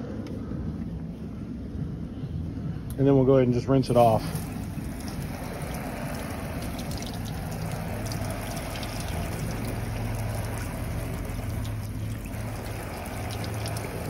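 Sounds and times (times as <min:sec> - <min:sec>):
low hum: 0:00.0 - 0:14.0
water running onto cushion: 0:04.0 - 0:14.0.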